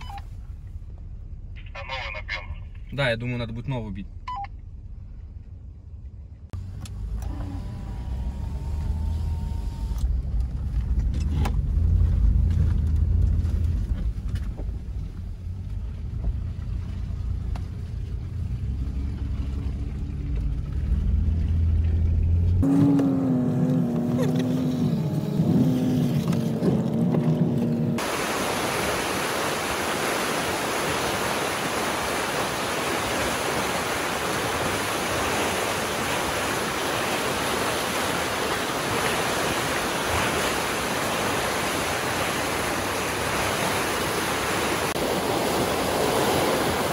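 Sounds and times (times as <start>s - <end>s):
engine and tyre rumble in cabin: 0.0s - 28.1s
fast rocky river rushing: 28.0s - 46.9s.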